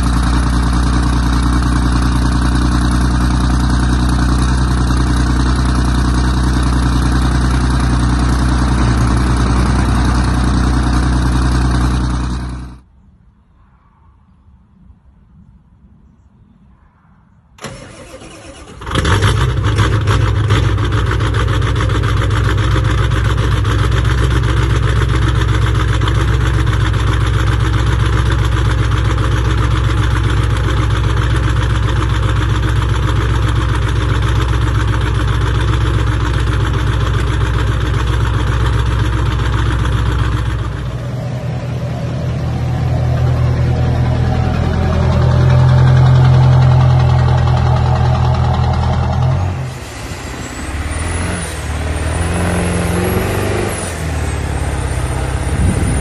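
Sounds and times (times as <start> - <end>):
diesel engine cranking and running: 0.0 - 12.8, 17.6 - 56.0
pickup engine idling: 0.0 - 12.8, 17.6 - 49.3.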